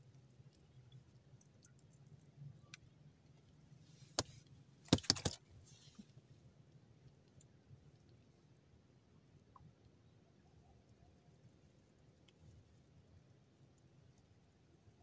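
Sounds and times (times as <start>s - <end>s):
fishing gear clicks: 4.9s - 5.4s.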